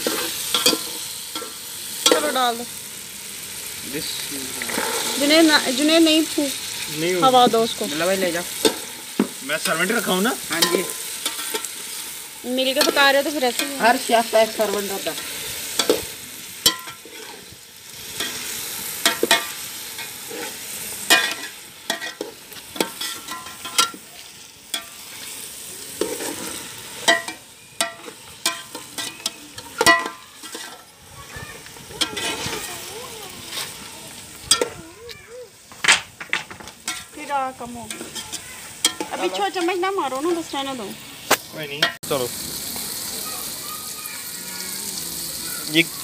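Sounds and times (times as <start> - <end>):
metal spoon clinking and scraping pot: 0.0 - 2.4, 8.6 - 14.0, 14.6 - 17.4, 19.0 - 24.0, 24.7 - 25.3, 26.0 - 30.9, 32.0 - 32.7, 34.4 - 34.8, 36.8 - 37.2, 37.8 - 40.5
food sizzling: 0.0 - 46.0.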